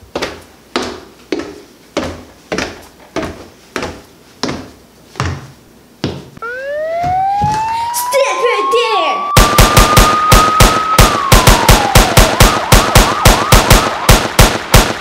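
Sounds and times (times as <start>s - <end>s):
footsteps on wooden stairs: 0.0s - 7.8s
rising whistle-like tone: 6.4s - 14.1s.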